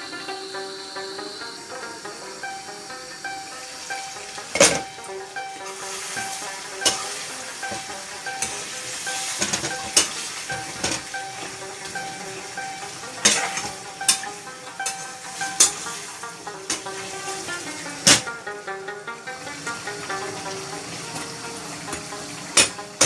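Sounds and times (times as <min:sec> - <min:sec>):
meat sizzling in a frying pan: 0:05.6 - 0:18.4.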